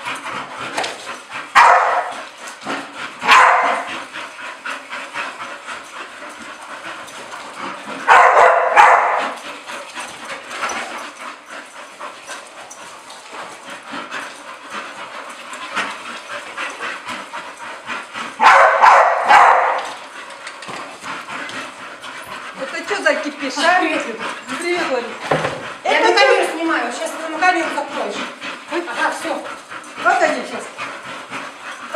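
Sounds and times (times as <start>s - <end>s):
dogs rustling: 0.0s - 31.9s
dogs barking: 1.5s - 2.2s, 3.2s - 3.9s, 8.0s - 9.4s, 18.3s - 20.0s.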